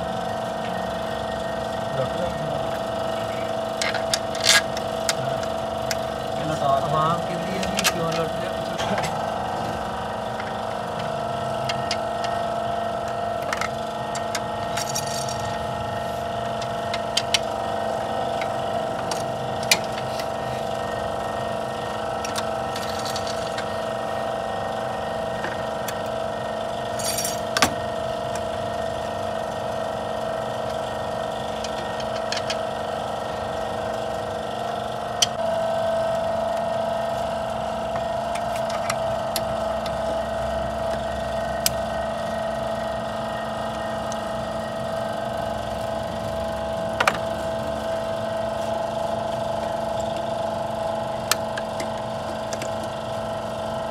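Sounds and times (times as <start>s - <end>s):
steady mechanical hum: 0.0s - 53.9s.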